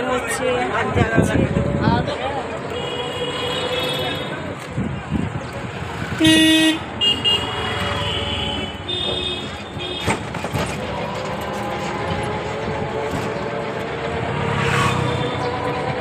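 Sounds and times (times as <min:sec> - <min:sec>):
road noise: 0:00.0 - 0:16.0
auto-rickshaw engine running: 0:03.4 - 0:16.0.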